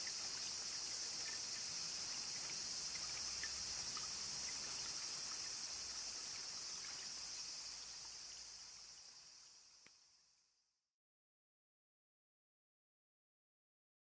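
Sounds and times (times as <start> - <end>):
trickling spring water: 0.0 - 10.6
insect chorus: 0.0 - 10.9.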